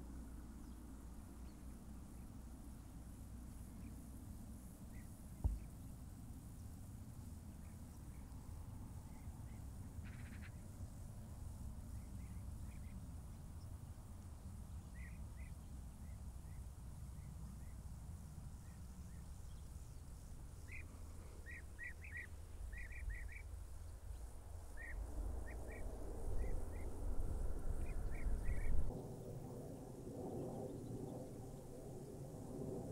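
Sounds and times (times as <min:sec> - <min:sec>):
small birds chirping: 0:18.6 - 0:25.8, 0:27.8 - 0:28.9.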